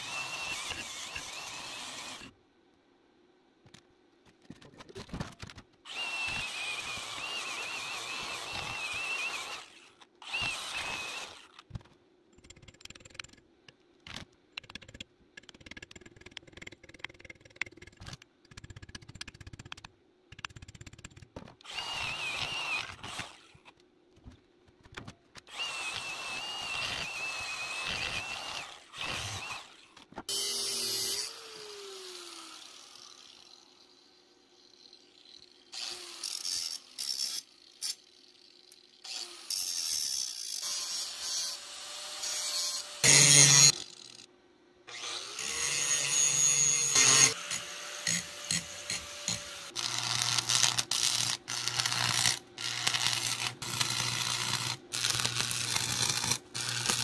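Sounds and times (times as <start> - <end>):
angle grinder grinding steel: 44.9 - 57.0.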